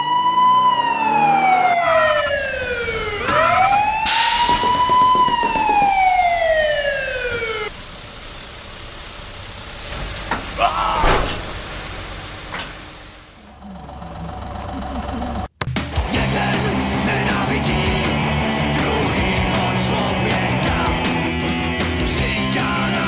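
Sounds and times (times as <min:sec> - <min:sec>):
wailing siren: 0:00.0 - 0:07.7.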